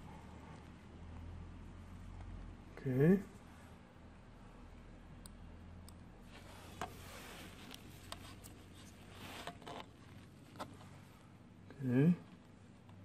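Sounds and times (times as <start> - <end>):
faint low hum: 0.0 - 13.0
hands rubbing and scraping parts: 5.3 - 11.4.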